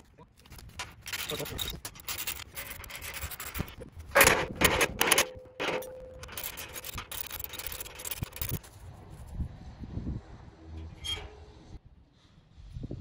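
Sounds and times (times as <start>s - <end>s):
metal rattling and scraping: 0.0s - 8.9s
metal tower sections knocking: 0.6s - 8.6s.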